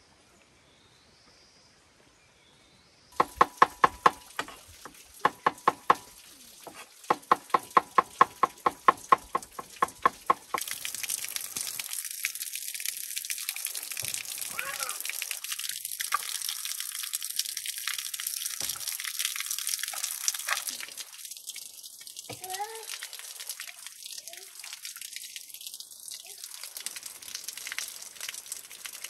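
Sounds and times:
knife chopping on wooden board: 3.2 - 4.6
sizzle of frying in oil: 3.2 - 29.0.

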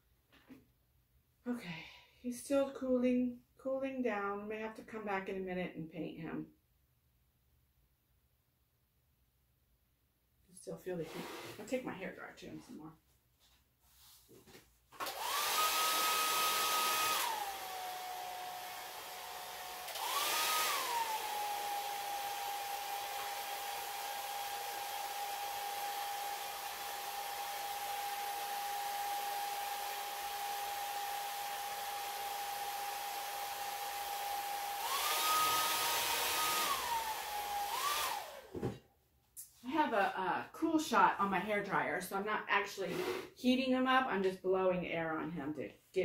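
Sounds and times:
hair dryer motor whine: 15.0 - 38.6.

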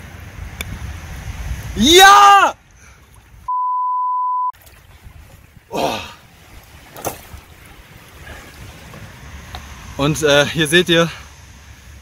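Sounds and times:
wind noise on microphone: 0.0 - 2.0, 4.7 - 9.2
censor bleep: 3.5 - 4.6.

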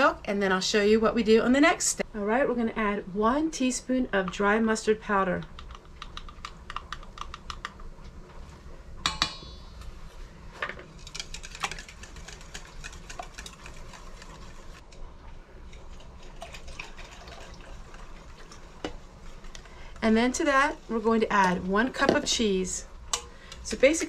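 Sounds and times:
whisk clicking in metal bowl: 11.0 - 14.8.

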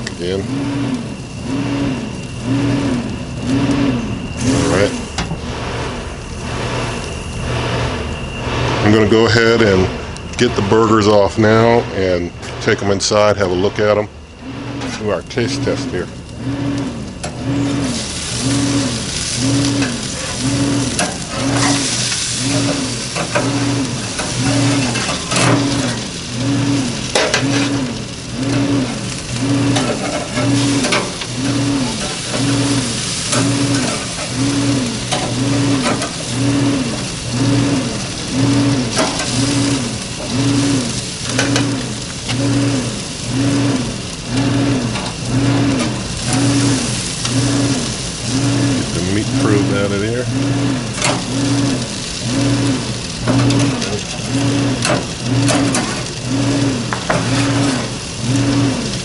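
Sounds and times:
grill hissing: 0.0 - 59.0
pulsing low hum: 0.0 - 59.0
spatula scraping grill grate: 16.5 - 59.0.

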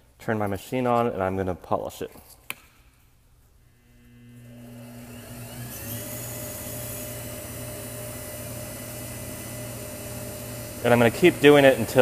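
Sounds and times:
wood lathe motor whine: 3.8 - 12.0.

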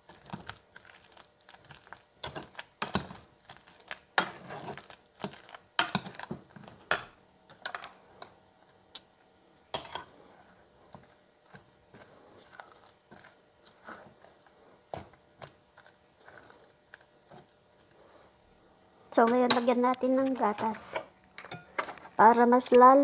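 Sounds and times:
spatula scraping and stirring mash: 0.0 - 8.8, 9.7 - 18.6.

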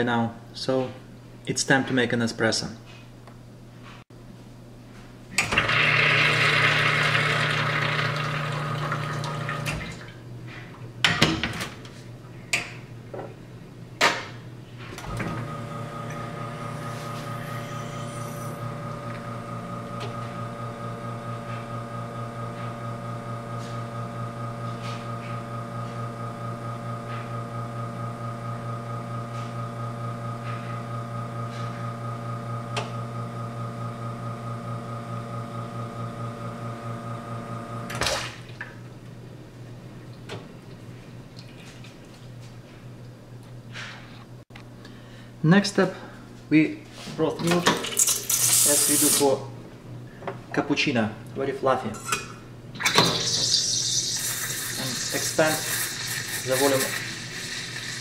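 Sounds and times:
pump pulsing hum: 5.4 - 10.2, 15.0 - 38.6
water rushing from espresso machine: 5.6 - 10.0, 15.2 - 24.0, 47.9 - 49.3, 52.8 - 58.0.

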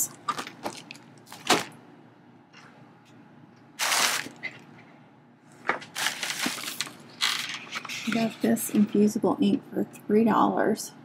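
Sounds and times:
rustling of craft supplies: 5.5 - 9.1.

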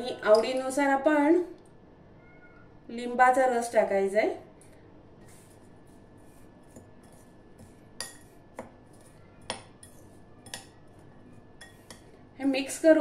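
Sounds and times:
spoon scraping bowl: 5.2 - 12.1
spoon clinking against glass bowl: 9.4 - 10.8.

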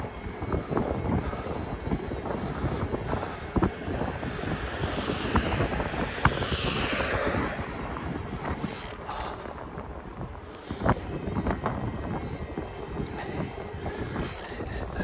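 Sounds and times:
wind buffeting microphone: 0.0 - 15.0
bicycle knocks and rattles: 8.5 - 14.6.

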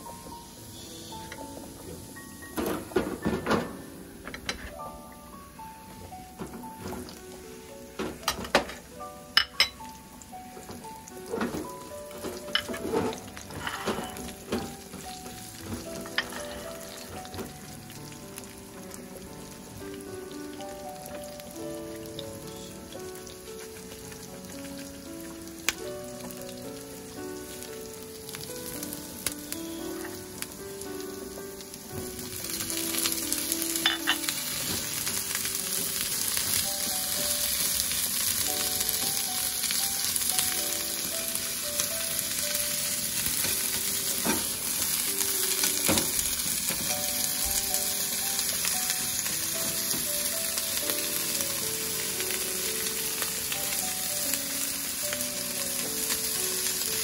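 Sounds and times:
food sizzling in a pan: 0.0 - 57.0
light background music: 0.0 - 57.0.

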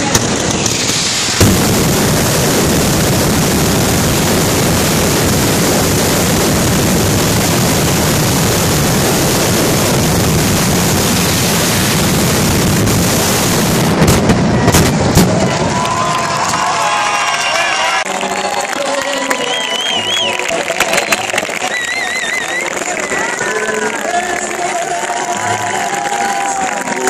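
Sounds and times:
loud firecracker bangs: 0.0 - 16.9
firecrackers roaring continuously: 0.0 - 27.0.

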